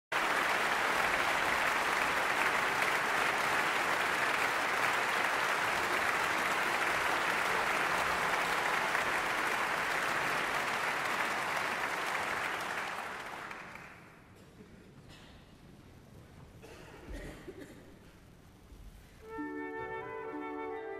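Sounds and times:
concert audience applauding: 0:00.1 - 0:14.3.

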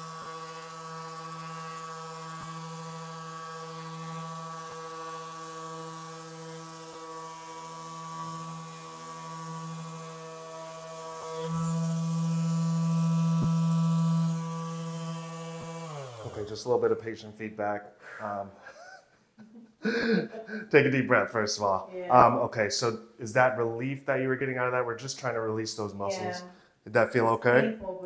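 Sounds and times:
handheld device humming: 0:00.0 - 0:16.5.

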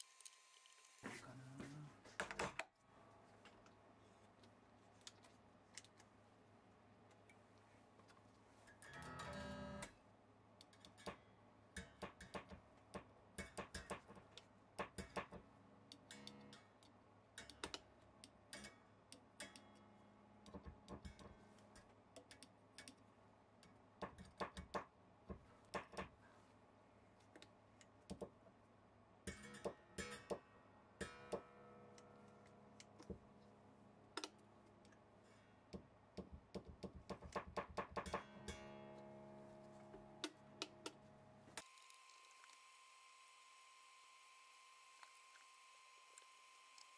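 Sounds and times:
small clicks and taps: 0:11.8 - 0:19.8, 0:20.4 - 0:23.0, 0:27.2 - 0:28.4, 0:35.7 - 0:38.2.

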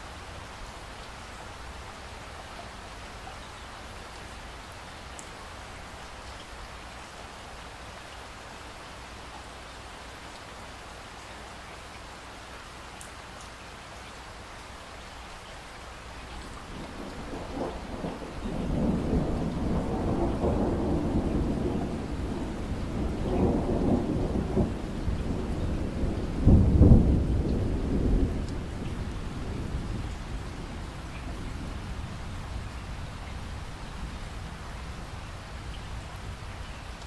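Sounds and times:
steady rain: 0:00.0 - 0:37.0
rolling thunder: 0:16.7 - 0:34.3.

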